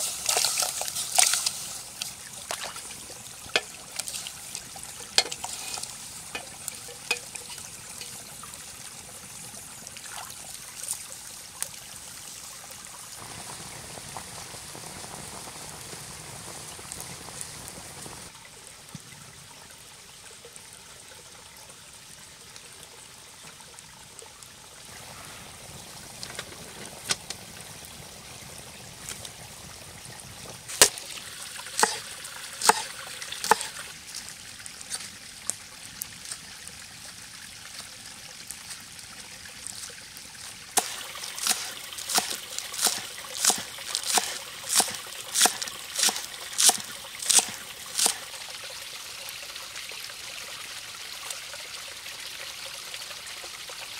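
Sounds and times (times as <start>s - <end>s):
stream trickling: 0.0s - 53.9s
knife chopping on wooden board: 32.6s - 33.7s, 41.4s - 48.2s.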